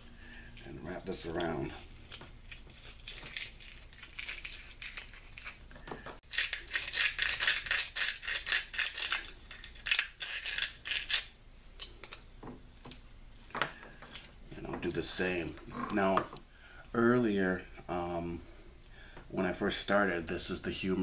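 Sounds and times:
sandpaper rasping inside bone: 6.3 - 11.3.

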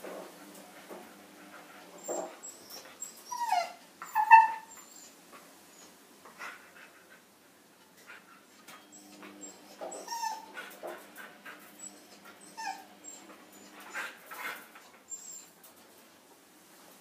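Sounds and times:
dogs whimpering and whining: 1.3 - 6.0, 8.6 - 15.6.

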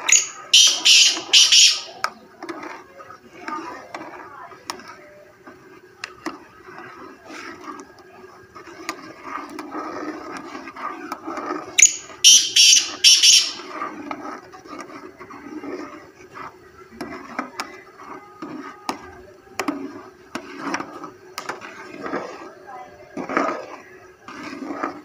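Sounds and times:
bird calling harsh notes: 0.0 - 2.0, 11.8 - 13.7.

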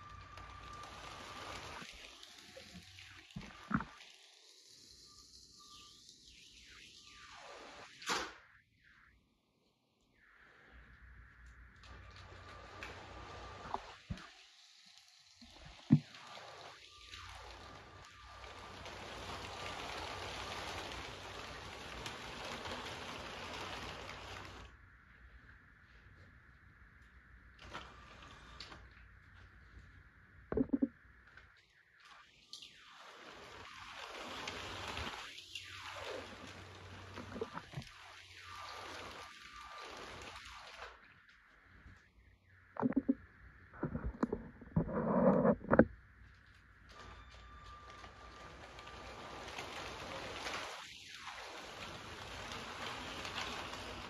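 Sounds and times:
toy train motor and wheels rattling: 0.0 - 6.0, 12.0 - 24.7, 37.9 - 41.0, 47.0 - 54.0.

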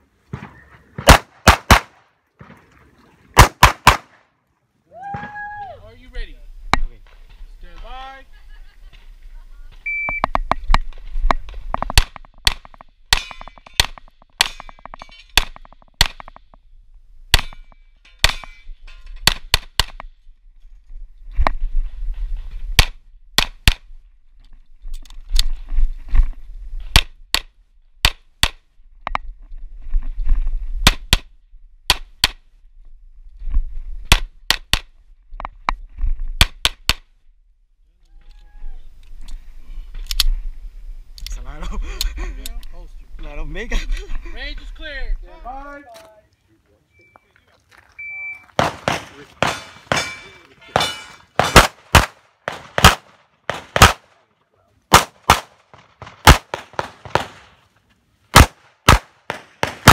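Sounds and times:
pistol shots: 1.0 - 2.6, 3.4 - 4.2, 48.6 - 54.2, 54.9 - 57.6, 58.3 - 59.9
electronic timer beep: 9.8 - 10.3.

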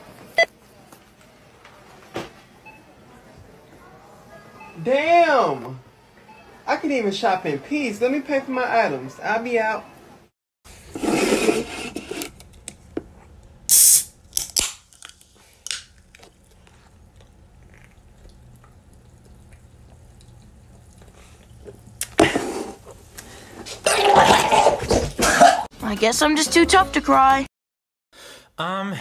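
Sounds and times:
soda can opening hiss: 13.7 - 15.9
faint steady hum: 15.0 - 23.8.

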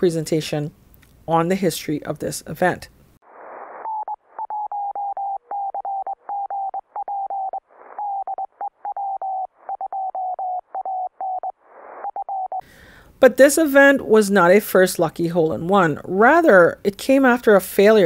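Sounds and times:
static hiss: 3.2 - 3.9
morse code tone: 3.9 - 12.6.

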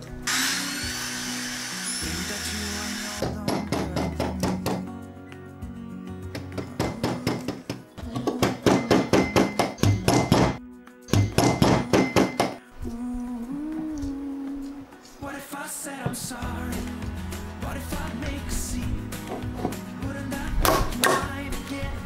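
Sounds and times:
soft background music: 0.0 - 22.0
hammer striking chisel into wood: 3.2 - 4.8, 6.4 - 12.6.

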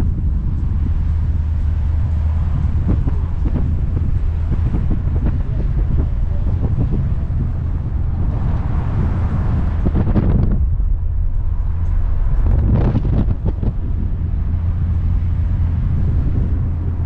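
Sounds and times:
car engine running: 0.0 - 17.0
road noise: 0.0 - 17.0
wind noise on microphone: 0.0 - 17.0.

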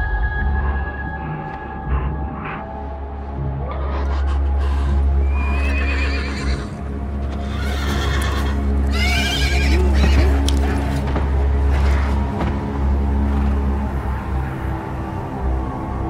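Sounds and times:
low droning film score: 0.0 - 16.0
horse whinnying: 3.7 - 10.9.

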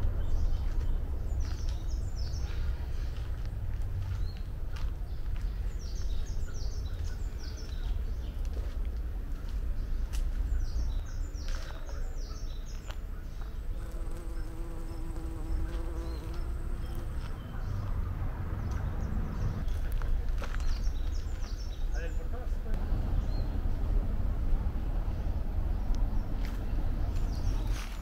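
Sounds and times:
songbirds chirping: 0.0 - 28.0
insect buzzing: 13.8 - 17.3.

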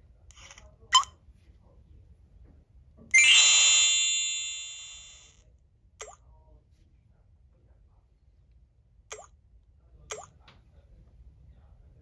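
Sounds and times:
chime-like confirmation tone: 3.1 - 5.2.

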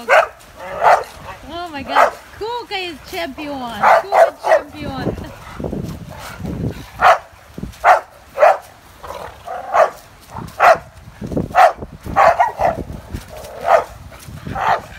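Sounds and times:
dog barking: 0.0 - 1.2, 1.9 - 2.2, 3.8 - 4.7, 7.0 - 8.7, 9.5 - 10.0, 10.6 - 10.9, 11.5 - 12.9, 13.6 - 14.9
rough scuffling: 5.7 - 14.9.

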